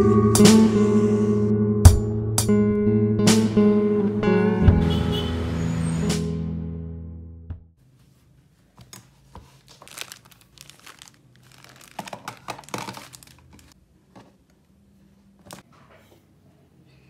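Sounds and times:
rustling and crinkling items: 0:07.8 - 0:14.6
objects clicking and knocking: 0:11.7 - 0:14.4.

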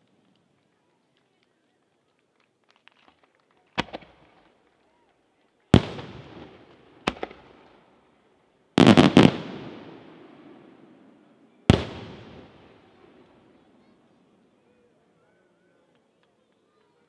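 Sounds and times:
firework shells bursting with bangs: 0:05.8 - 0:07.7, 0:08.8 - 0:11.0, 0:11.7 - 0:13.4.

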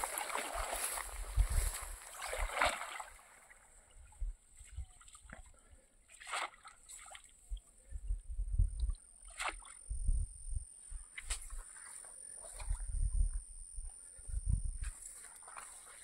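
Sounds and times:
water splashing and sloshing: 0:00.0 - 0:07.8, 0:08.8 - 0:09.9, 0:11.1 - 0:13.0, 0:15.0 - 0:16.0
wind rumble on microphone: 0:00.8 - 0:02.0, 0:03.9 - 0:05.0, 0:07.4 - 0:09.1, 0:09.8 - 0:11.6, 0:12.4 - 0:15.2.

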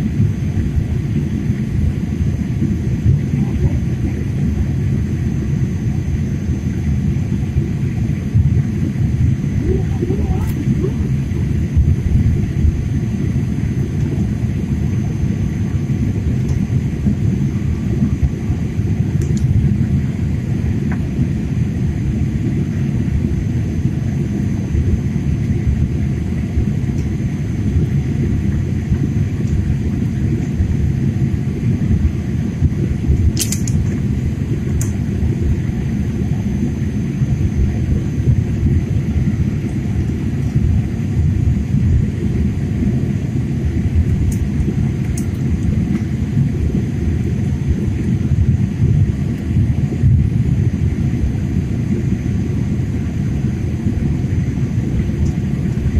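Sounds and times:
jet engines rumbling in cabin: 0:00.0 - 0:55.9.

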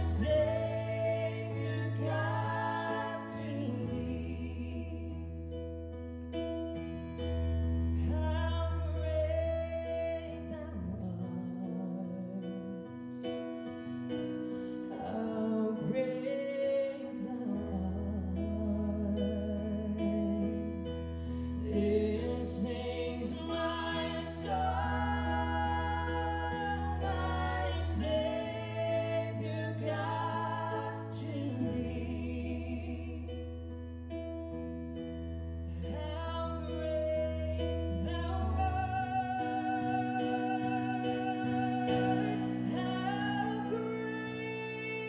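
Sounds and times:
person singing: 0:00.0 - 0:05.4, 0:14.8 - 0:20.8, 0:21.4 - 0:33.6, 0:35.8 - 0:45.0
piano: 0:00.0 - 0:45.0.

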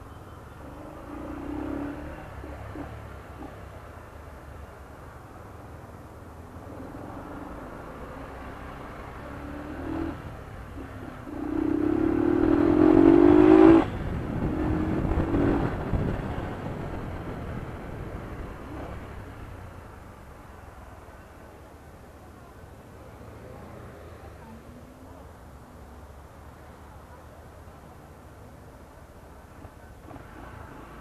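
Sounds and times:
motorcycle engine revving: 0:00.8 - 0:03.1, 0:06.7 - 0:16.8.

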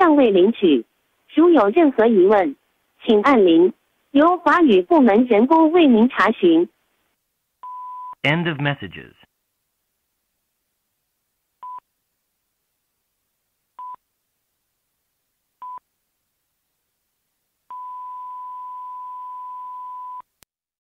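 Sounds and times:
answering machine beeps: 0:07.6 - 0:08.2, 0:17.7 - 0:20.2.

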